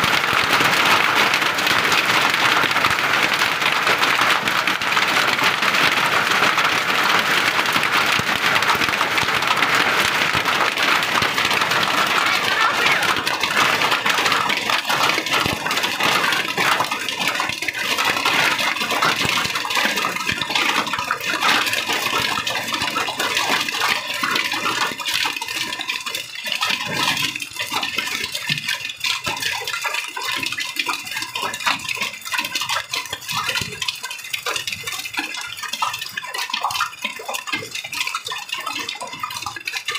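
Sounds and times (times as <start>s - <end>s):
hailstones ticking: 0.0s - 39.9s
rain and hail pelting ground: 0.0s - 39.9s.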